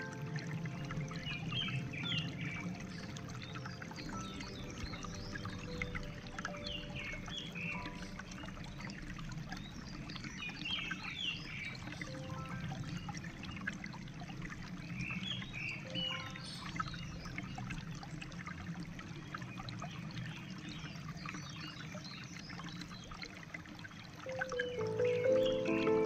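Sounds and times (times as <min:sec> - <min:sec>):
stream water babbling over rocks: 0:00.0 - 0:26.0
bird chirps: 0:01.0 - 0:08.4, 0:24.3 - 0:26.0.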